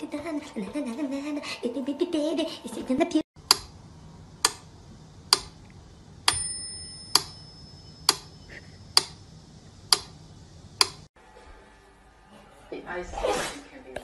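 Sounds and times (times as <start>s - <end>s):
metronome ticking: 6.3s - 8.3s
thin ringing tone: 6.3s - 8.9s.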